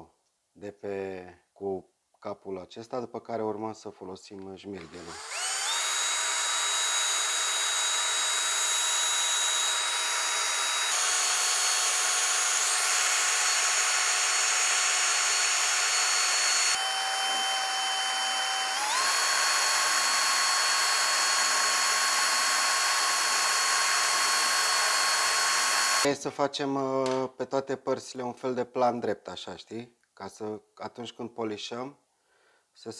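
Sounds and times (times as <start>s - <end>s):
rotary tool whine: 4.8s - 26.1s.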